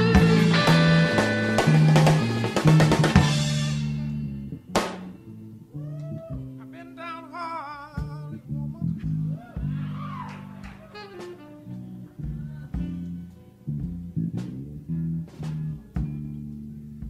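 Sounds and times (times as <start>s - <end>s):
electric bass: 0.0s - 17.0s
electric guitar with vibrato: 0.0s - 17.0s
drum hits: 4.7s - 5.2s.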